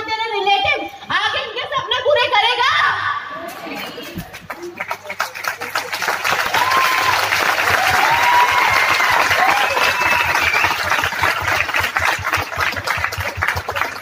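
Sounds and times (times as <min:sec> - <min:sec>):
audience applauding: 0:03.7 - 0:14.0.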